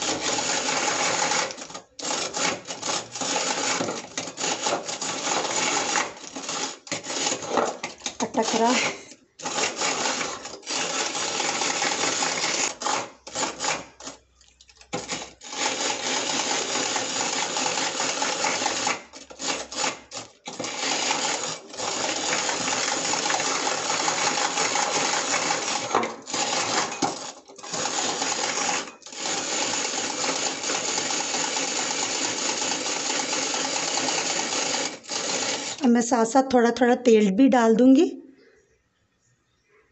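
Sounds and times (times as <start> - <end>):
egg beater whirring and rattling: 0.0 - 36.1
beaters clattering in glass bowl: 20.4 - 29.1.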